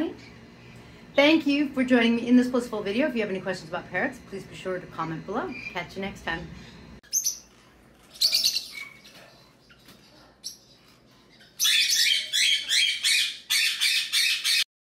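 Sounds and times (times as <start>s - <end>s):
parrots chirping and squawking: 6.5s - 14.7s.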